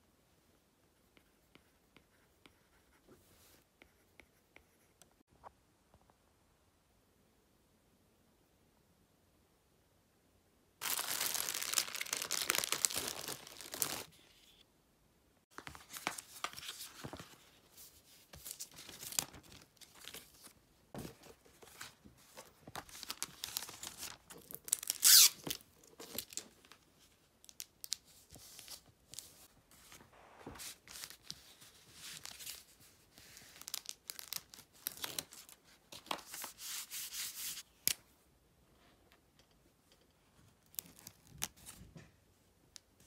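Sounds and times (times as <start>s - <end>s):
paper and plastic rustling: 10.8s - 14.2s.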